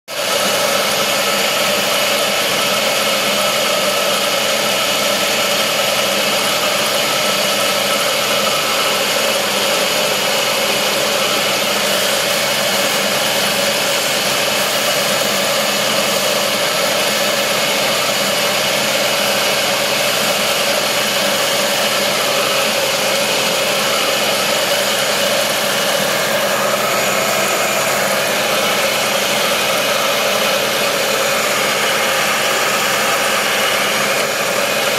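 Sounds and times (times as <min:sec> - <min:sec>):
wood lathe motor hum: 0:00.1 - 0:34.9.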